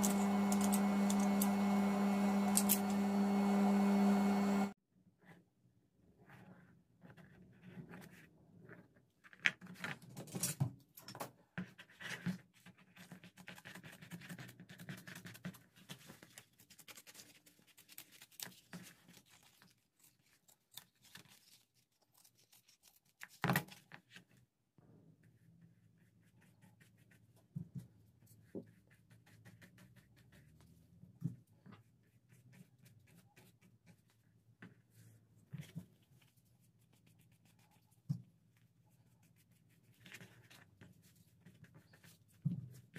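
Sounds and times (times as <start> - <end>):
scissors cutting leather: 0.0 - 1.6, 2.4 - 3.0.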